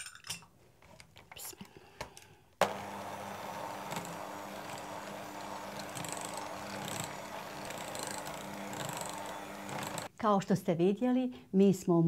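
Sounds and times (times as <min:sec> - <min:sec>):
electric hand mixer humming: 0:02.6 - 0:10.1.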